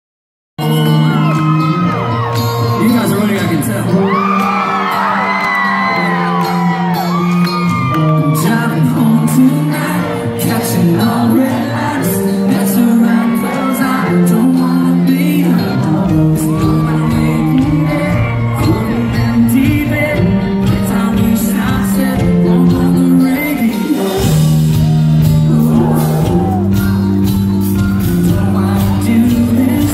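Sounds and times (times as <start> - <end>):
audience shouting and whooping: 0.6 - 14.3, 15.4 - 20.1, 24.0 - 27.4
live country-rock band: 0.6 - 29.9
man singing: 0.6 - 29.9.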